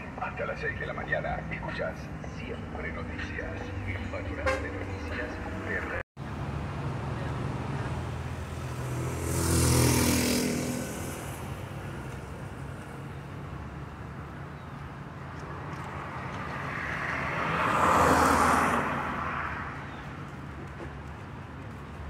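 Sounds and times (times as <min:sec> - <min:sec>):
low traffic hum: 0:00.0 - 0:22.0
car passing by: 0:02.8 - 0:13.1, 0:15.4 - 0:20.1.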